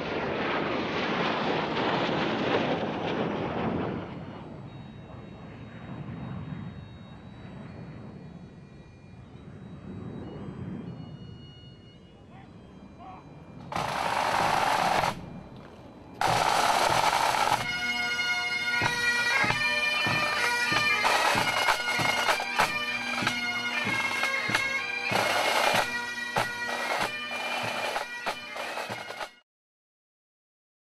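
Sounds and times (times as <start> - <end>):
jet aircraft noise: 0.0 - 8.4, 12.1 - 29.3
bagpipes playing a tune: 12.0 - 29.4
drum strokes: 13.7 - 15.3, 16.2 - 29.4.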